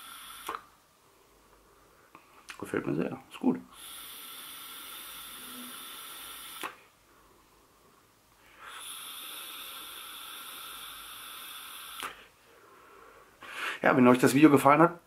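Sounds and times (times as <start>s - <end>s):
air hissing through vape: 0.0s - 0.7s, 3.7s - 6.9s, 8.5s - 12.3s.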